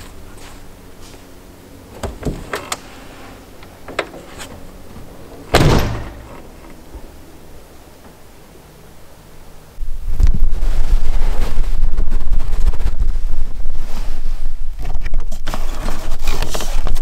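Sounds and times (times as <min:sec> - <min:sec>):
van door slamming: 0:01.9 - 0:02.9, 0:03.7 - 0:07.1
door clicks and knocks: 0:02.0 - 0:02.8, 0:05.5 - 0:06.3.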